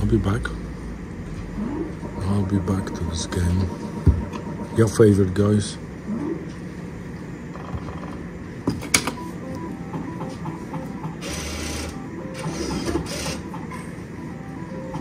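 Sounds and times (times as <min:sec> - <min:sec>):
slot game tones and jingles: 0:01.9 - 0:05.3.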